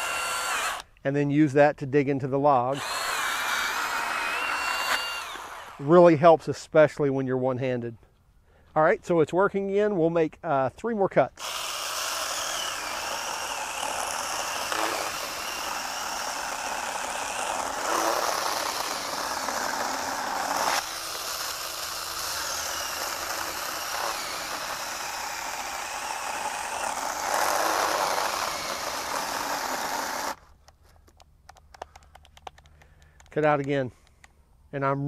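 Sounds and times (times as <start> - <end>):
cordless chainsaw cutting log: 0.0 - 0.9, 2.7 - 6.0, 11.4 - 30.4.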